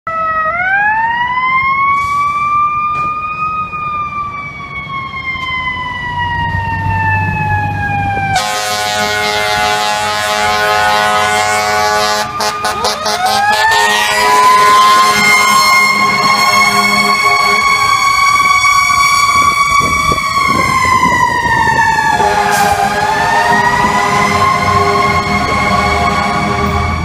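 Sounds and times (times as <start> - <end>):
air horn blasts: 8.3 - 18.0, 22.1 - 27.0.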